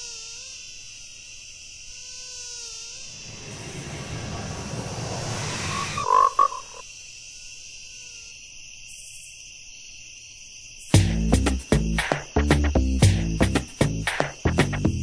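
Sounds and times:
high insect chirring: 0:00.0 - 0:15.0
rush of noise: 0:03.1 - 0:06.8
frog croaking: 0:05.7 - 0:06.8.

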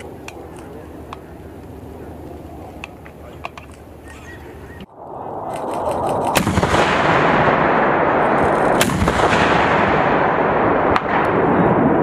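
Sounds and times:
loud rushing noise: 0:04.8 - 0:12.0
recoilless rifle shots: 0:05.4 - 0:11.8.

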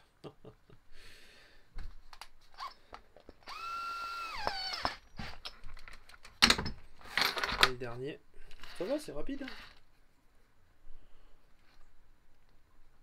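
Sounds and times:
cordless drill whining: 0:02.6 - 0:05.4.

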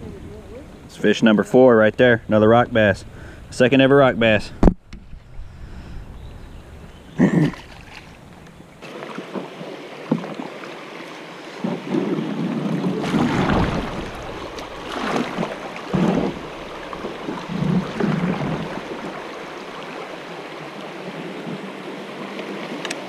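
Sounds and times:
creek water rushing: 0:06.5 - 0:23.0.

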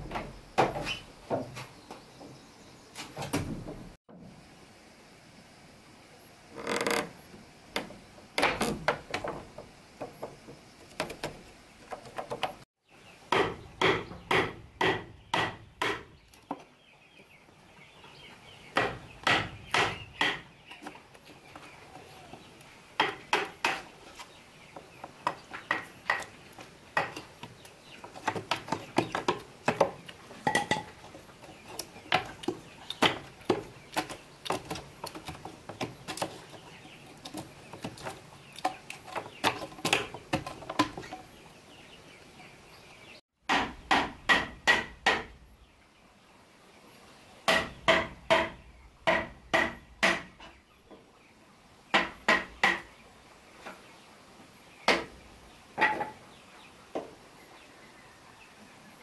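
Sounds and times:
hammer striking wood: 0:13.3 - 0:16.1, 0:18.8 - 0:20.4, 0:23.0 - 0:23.8, 0:43.5 - 0:45.3, 0:47.5 - 0:50.4, 0:51.9 - 0:52.8.

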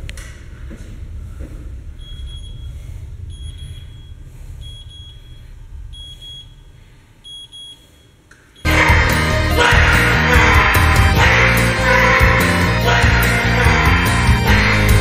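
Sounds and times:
low rumble: 0:00.0 - 0:07.3
scale beeping: 0:02.0 - 0:08.7
heavy metal music: 0:08.7 - 0:15.0.

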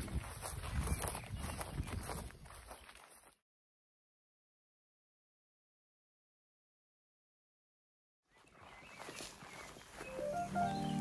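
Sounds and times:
background music with low chords: 0:10.1 - 0:11.0.

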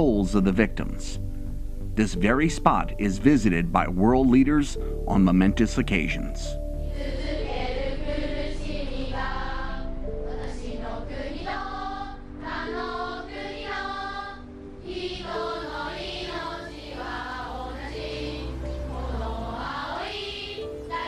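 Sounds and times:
held instrumental tones: 0:00.0 - 0:10.1
choir singing a slow song: 0:02.2 - 0:21.0.

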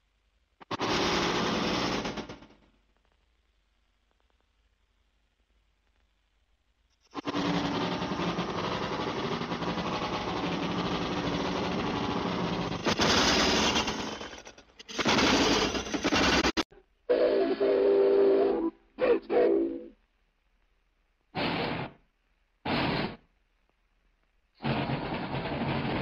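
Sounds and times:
steam train chuffing: 0:07.2 - 0:18.5, 0:24.6 - 0:26.0.

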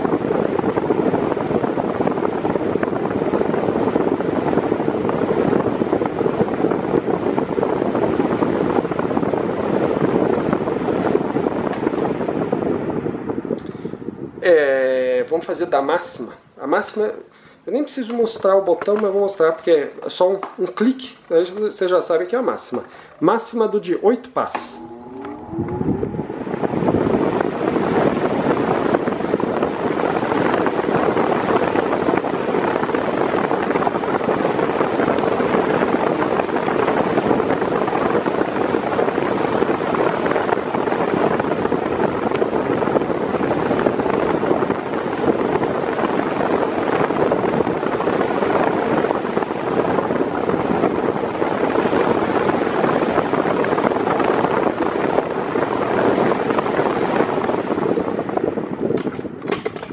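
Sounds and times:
electric fan rushing air: 0:00.0 - 0:59.9.

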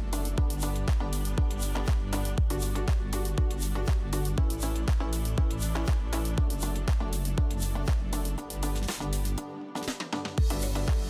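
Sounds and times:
kick drum beat: 0:00.0 - 0:08.2, 0:10.4 - 0:11.0
held bass line: 0:00.0 - 0:09.4, 0:10.4 - 0:11.0
ticking hi-hats: 0:10.4 - 0:11.0.

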